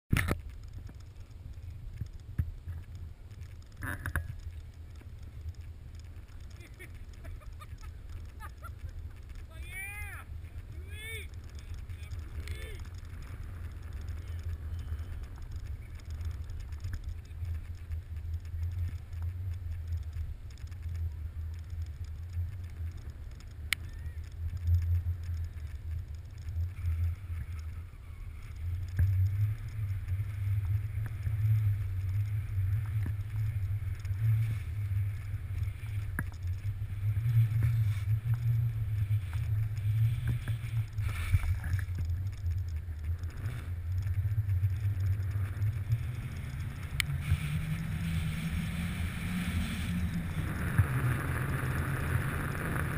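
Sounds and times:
skis carving snow: 0:00.1 - 0:52.9.

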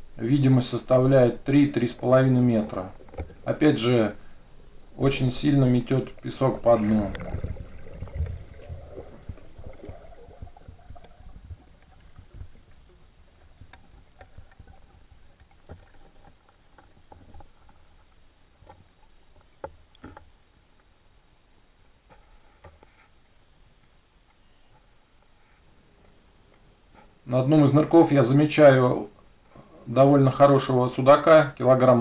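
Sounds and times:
underwater water rumble: 0:01.8 - 0:20.4.

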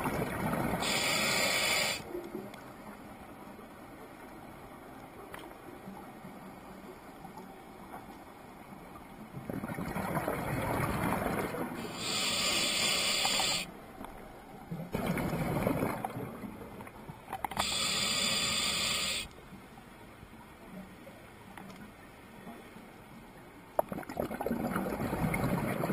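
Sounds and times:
diver breathing through regulator: 0:00.8 - 0:02.0, 0:11.8 - 0:13.7, 0:17.6 - 0:19.3
exhaled bubbles underwater: 0:09.4 - 0:11.8, 0:14.7 - 0:16.6, 0:23.8 - 0:25.9.

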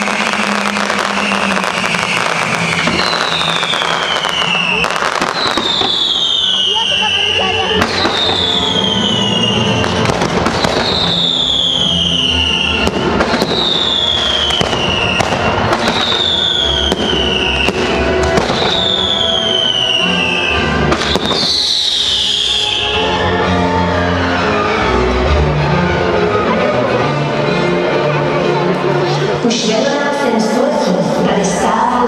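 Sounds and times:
fireworks bangs and crackle: 0:00.0 - 0:23.0
falling firework whistle: 0:00.0 - 0:24.1.

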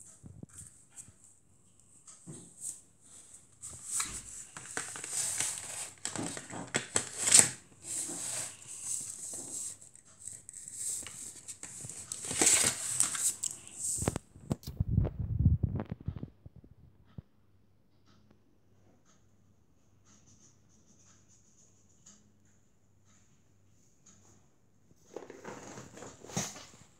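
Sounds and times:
markers rustling in plastic box: 0:03.7 - 0:14.2.

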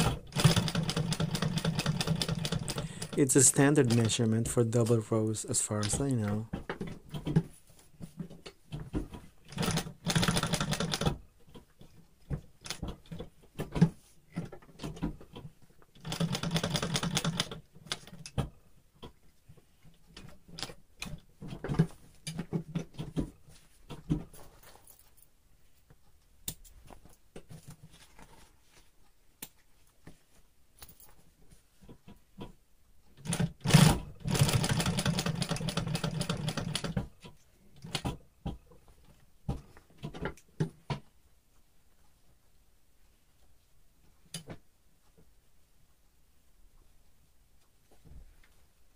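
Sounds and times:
industrial sewing machine stitching: 0:00.0 - 0:04.2, 0:09.5 - 0:11.2, 0:16.0 - 0:17.6, 0:33.2 - 0:37.0
clicks and knocks of fabric handling: 0:05.8 - 0:45.4.

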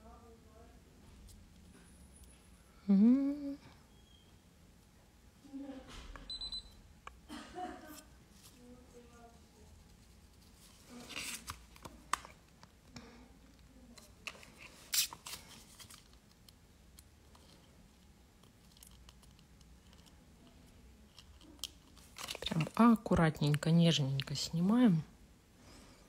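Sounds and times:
plastic sticker sheet rustling: 0:09.9 - 0:12.4.

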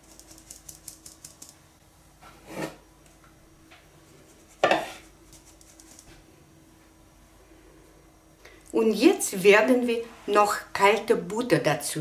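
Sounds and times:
kitchenware knocking on baking dish: 0:04.6 - 0:05.0.

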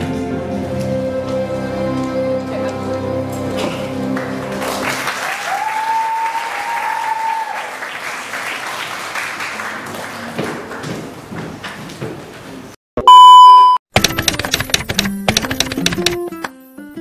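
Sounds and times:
music: 0:00.0 - 0:05.5, 0:14.0 - 0:17.0
audience applauding: 0:04.0 - 0:10.8.

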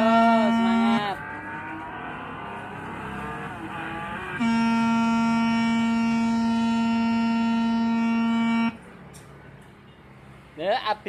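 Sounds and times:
wavering ride sound effects: 0:00.0 - 0:08.7
electronic horn buzzing: 0:00.0 - 0:08.8.

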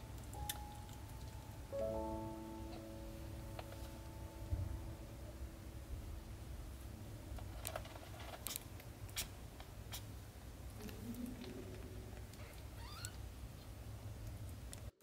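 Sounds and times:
low steady rumble: 0:00.0 - 0:09.0.

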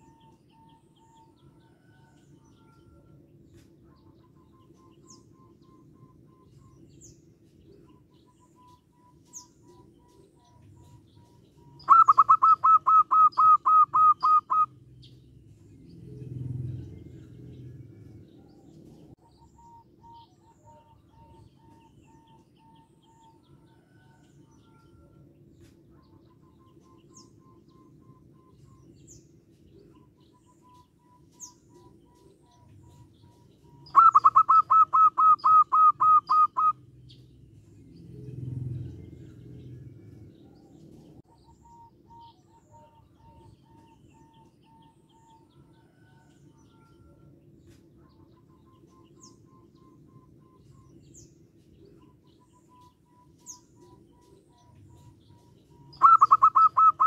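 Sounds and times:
faint bird chirps: 0:00.0 - 0:57.0
dove staccato call: 0:08.0 - 0:14.7, 0:30.7 - 0:36.8, 0:51.9 - 0:57.0.

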